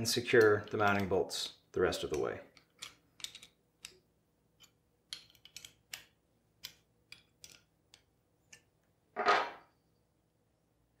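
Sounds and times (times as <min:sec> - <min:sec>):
wrench clicking on bolt heads: 0:00.3 - 0:01.2, 0:02.0 - 0:04.0, 0:04.6 - 0:08.7.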